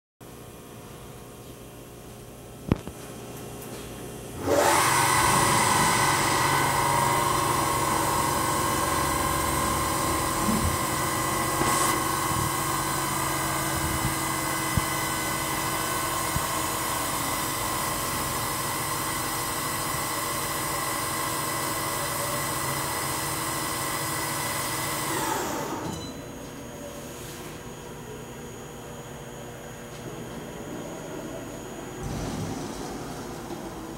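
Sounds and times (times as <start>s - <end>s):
machine tool whine: 4.4s - 26.4s.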